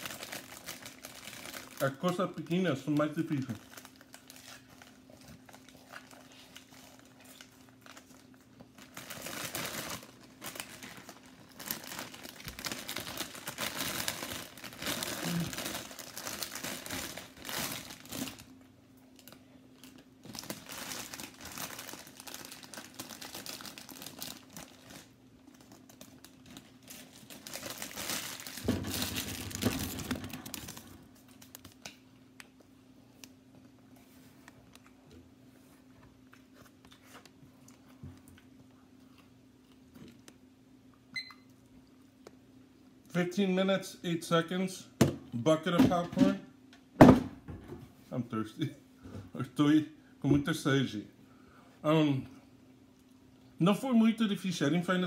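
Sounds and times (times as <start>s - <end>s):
plastic bag crinkling: 0.0s - 18.6s, 19.2s - 31.9s.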